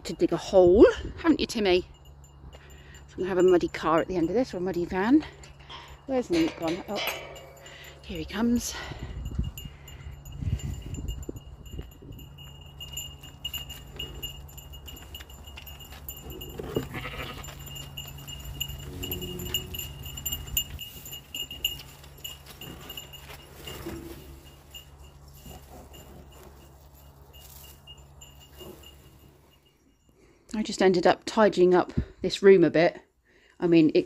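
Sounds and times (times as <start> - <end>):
steady low hum: 0.0 - 29.8
livestock bleating: 16.4 - 17.6.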